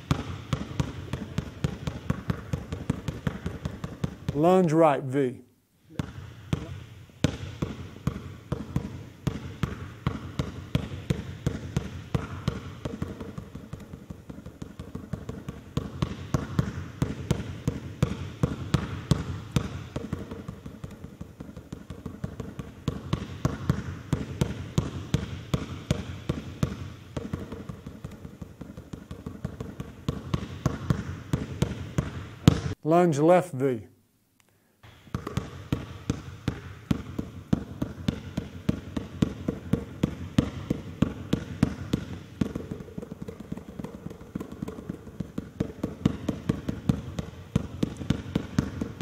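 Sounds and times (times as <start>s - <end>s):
basketball bouncing on hardwood floor: 0.0s - 4.5s, 5.9s - 32.8s, 34.8s - 49.0s.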